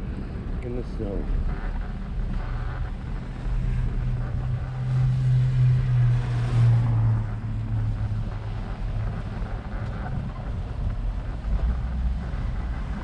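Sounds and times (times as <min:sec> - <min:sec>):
wind rumble: 0:00.0 - 0:13.0.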